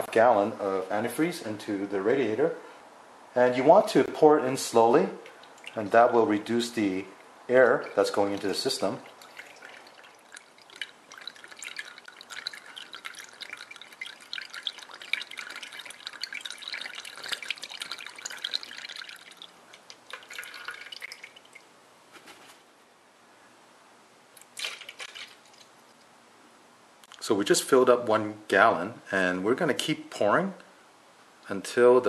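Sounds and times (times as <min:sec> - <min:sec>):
liquid pouring into funnel: 0:05.2 - 0:07.0, 0:07.6 - 0:21.7, 0:24.4 - 0:25.8.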